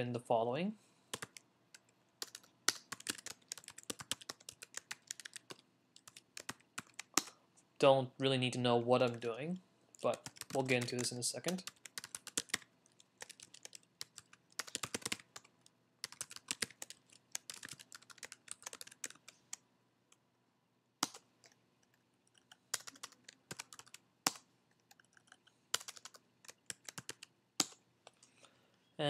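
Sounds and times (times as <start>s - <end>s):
computer keyboard typing: 1.1s - 7.4s, 10.0s - 19.3s, 21.0s - 27.8s.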